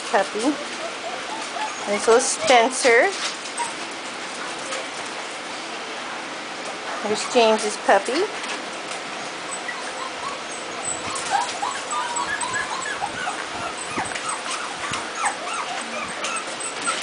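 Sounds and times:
puppies whimpering and yipping: 0.4s - 4.2s, 9.2s - 17.0s.

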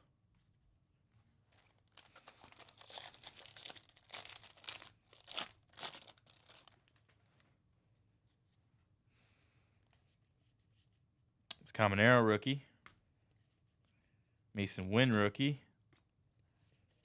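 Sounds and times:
card pack wrapper tearing and crinkling: 1.5s - 7.2s.

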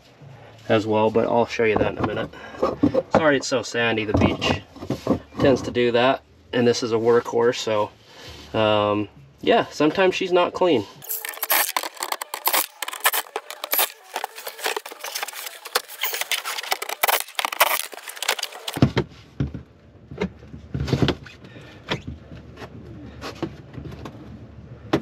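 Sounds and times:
cordless driver running: 11.0s - 18.8s.

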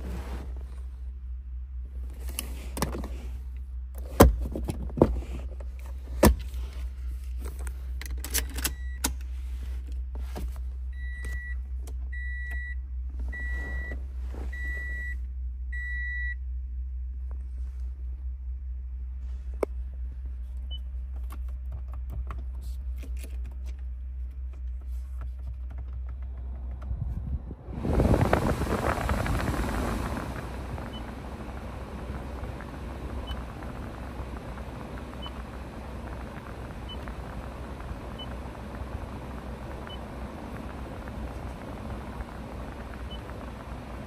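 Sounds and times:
steady low hum: 0.0s - 44.0s
car warning chime beeping: 11.0s - 12.8s, 13.4s - 16.4s, 35.1s - 38.5s
handling knocks and clicks: 21.1s - 26.9s.

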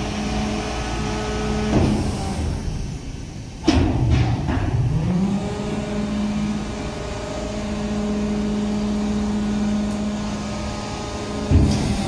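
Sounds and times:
truck diesel engine humming: 4.9s - 12.0s.

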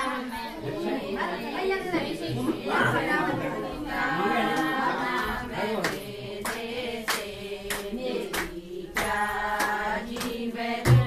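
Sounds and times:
group singing a devotional song: 0.0s - 11.0s
rhythmic hand-clapping: 3.7s - 11.0s.

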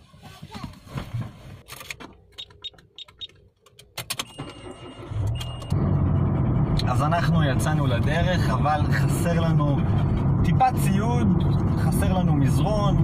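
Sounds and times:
car engine starting and idling: 0.5s - 13.0s
car keys rattling in ignition: 1.6s - 5.8s.

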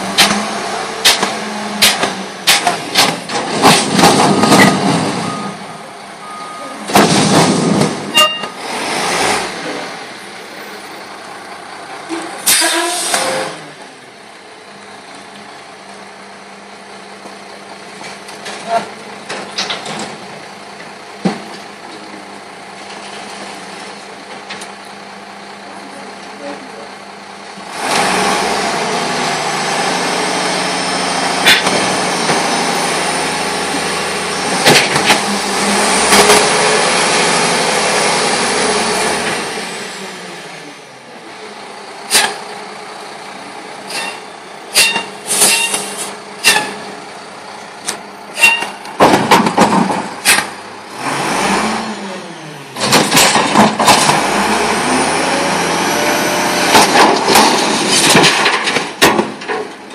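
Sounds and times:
garbage truck engine revving: 0.0s - 14.2s, 16.0s - 59.9s
metal clanks and bangs: 1.0s - 5.4s, 43.9s - 46.9s, 48.3s - 50.6s, 52.8s - 54.3s, 56.7s - 59.9s
load clattering into hopper: 56.7s - 59.9s.

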